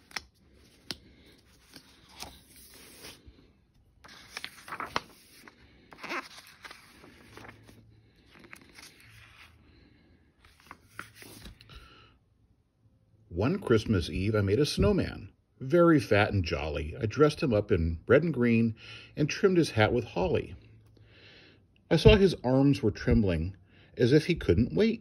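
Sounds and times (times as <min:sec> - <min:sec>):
book pages rustling: 0:00.0 - 0:09.6, 0:10.4 - 0:11.8.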